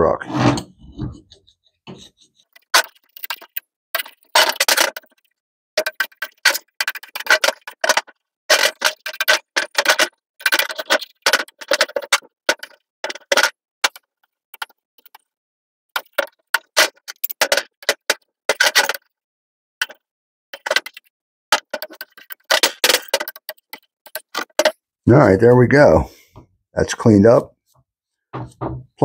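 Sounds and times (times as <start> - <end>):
scraper scraping metal: 0.2 - 2.2.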